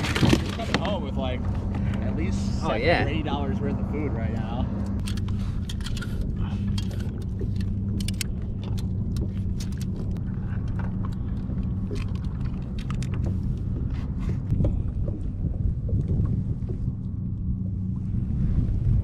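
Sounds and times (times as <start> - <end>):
low hum: 0.0 - 19.0
fishing gear clicking and clinking: 4.9 - 14.5.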